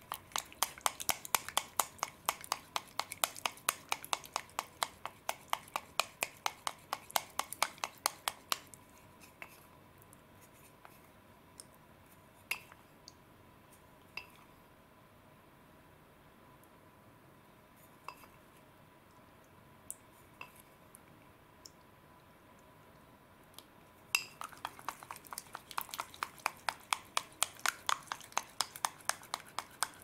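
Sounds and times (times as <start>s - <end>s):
slime being stirred: 0.0s - 9.7s, 24.1s - 30.0s.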